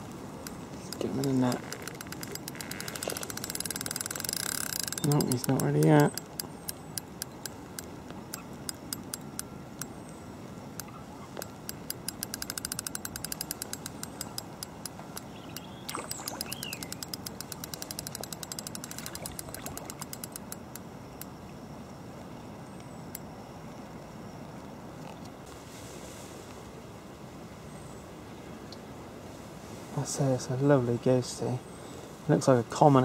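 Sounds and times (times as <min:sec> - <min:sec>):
fishing reel clicking: 0:00.4 - 0:09.9, 0:11.4 - 0:21.3.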